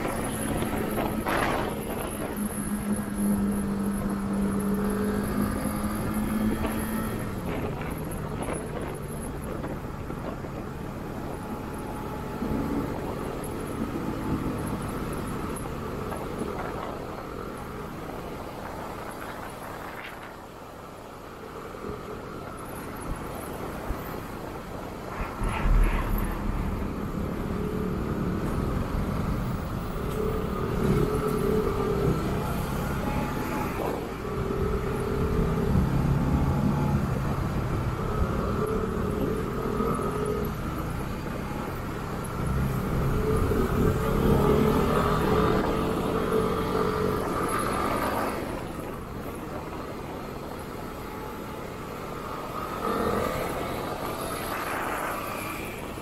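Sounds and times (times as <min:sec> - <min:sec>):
steady rushing noise: 0:00.0 - 0:39.8.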